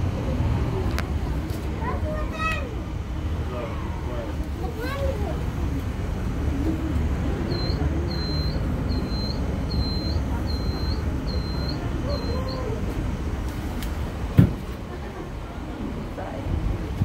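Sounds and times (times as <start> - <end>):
cable car cabin rumble: 0.0 - 17.0
high-pitched beep: 7.5 - 12.6
sharp thump: 14.3 - 14.7.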